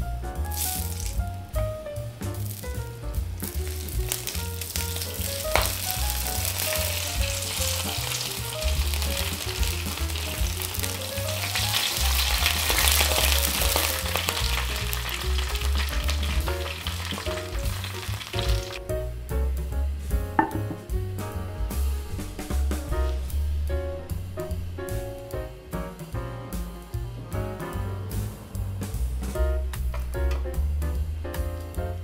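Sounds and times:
background music with bass: 0:00.0 - 0:32.0
hot oil sizzling: 0:00.3 - 0:19.1.

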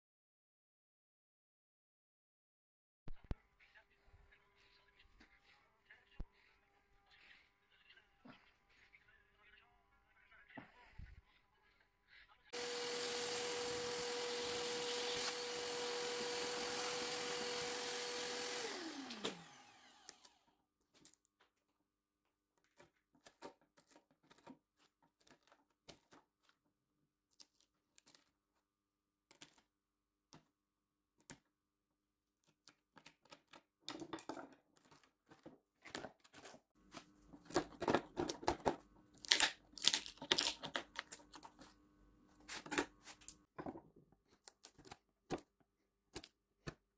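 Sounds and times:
power tool motor running: 0:12.5 - 0:20.6.

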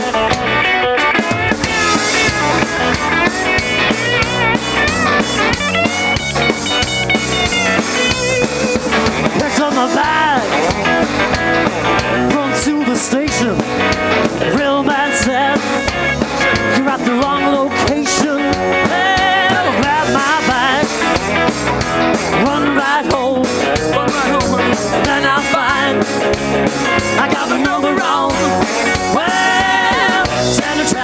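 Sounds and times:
live rock band playing: 0:00.0 - 0:31.0.

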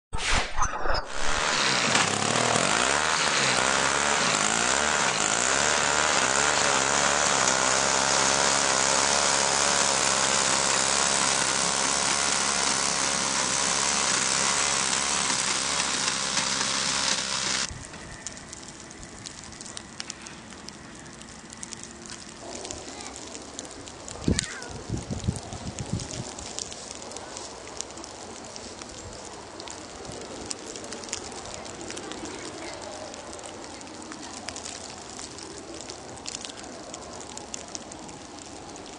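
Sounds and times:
snowblower engine running: 0:01.2 - 0:17.7.

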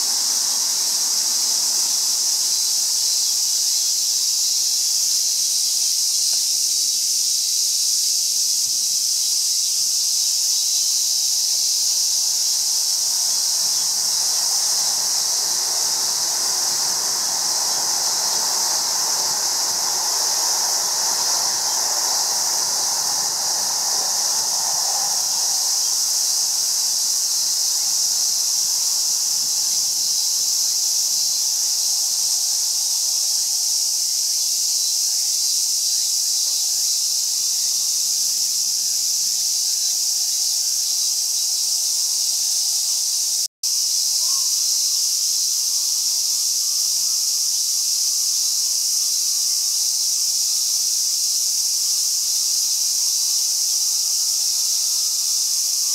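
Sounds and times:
passing electric train rumble: 0:00.0 - 0:03.2, 0:12.2 - 0:29.5
cicadas droning: 0:00.0 - 0:55.9.

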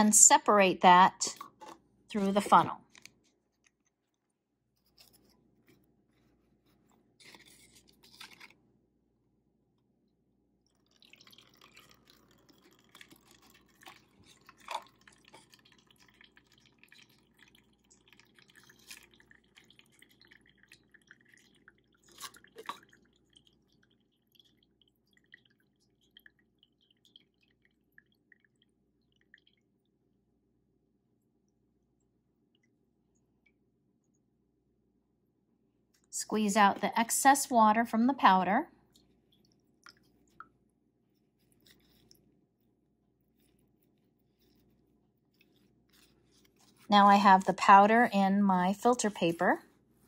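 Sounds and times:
water dripping through filter: 0:10.6 - 0:30.3, 0:31.2 - 0:34.3, 0:36.0 - 0:40.7.

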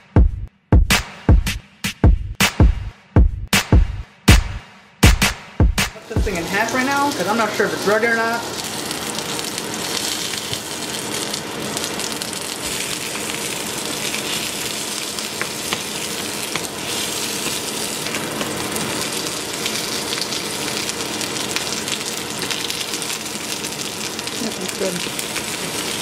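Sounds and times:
patty sizzling in a frying pan: 0:06.0 - 0:26.0.

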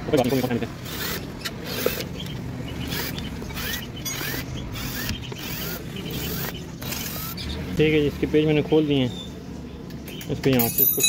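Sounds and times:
cordless drill running in bursts: 0:00.3 - 0:02.0, 0:02.9 - 0:07.4.

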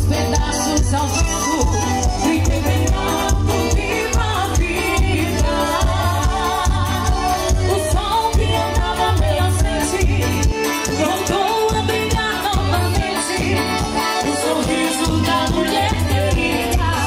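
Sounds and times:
bass drum beat: 0:00.0 - 0:10.6
accordion: 0:00.0 - 0:17.0.

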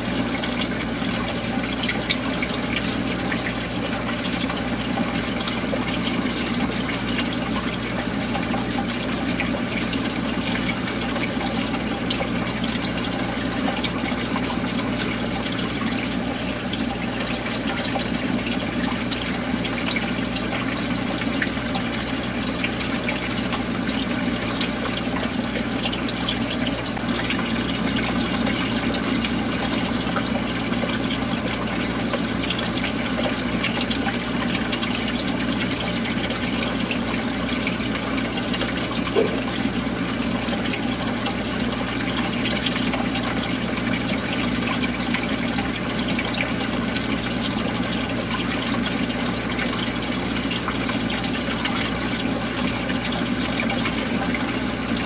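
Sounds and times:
aquarium water trickling: 0:00.0 - 0:55.0.

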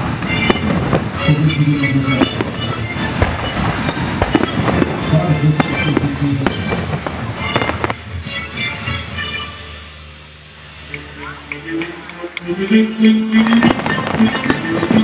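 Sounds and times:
fireworks bangs and crackles: 0:00.0 - 0:09.1, 0:13.3 - 0:15.0
music playing: 0:00.0 - 0:15.0.

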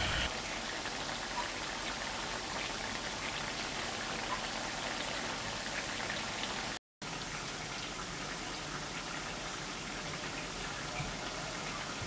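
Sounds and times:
seasoning sizzling in hot oil: 0:00.0 - 0:06.7.

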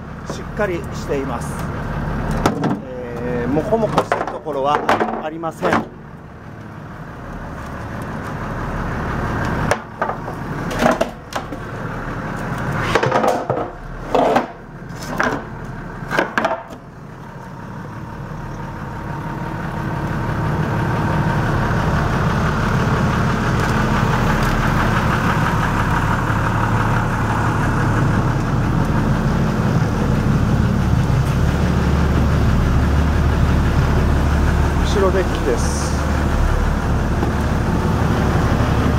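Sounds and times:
low rumble: 0:16.9 - 0:38.9.

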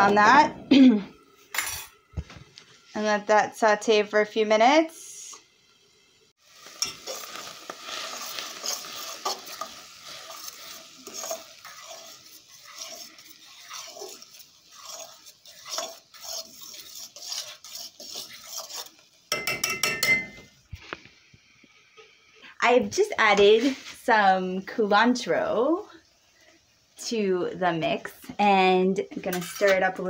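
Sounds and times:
vegetables sizzling: 0:00.0 - 0:30.0
utensil stirring and scraping pan: 0:06.5 - 0:20.5, 0:23.2 - 0:24.0, 0:29.0 - 0:30.0.

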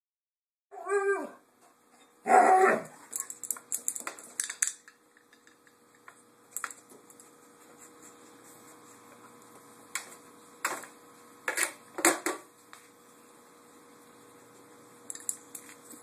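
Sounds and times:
dog whining: 0:00.7 - 0:01.4, 0:02.0 - 0:03.1
dog barking: 0:02.3 - 0:02.9
claws clicking on tile floor: 0:03.1 - 0:07.3, 0:15.1 - 0:15.9.

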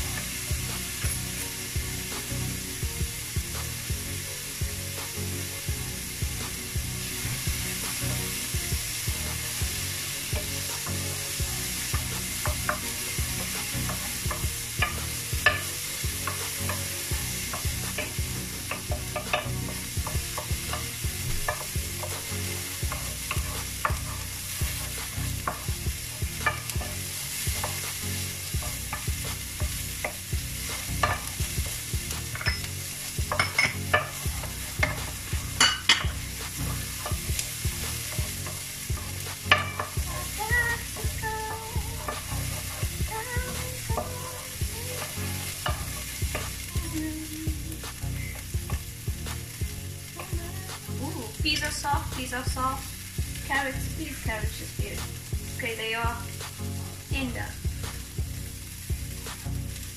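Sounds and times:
frying sizzle: 0:00.0 - 0:59.9
spoon scraping vegetables in pan: 0:11.6 - 0:46.7
spoon knocking against pan: 0:31.0 - 0:31.4, 0:32.3 - 0:36.2, 0:38.2 - 0:40.2.

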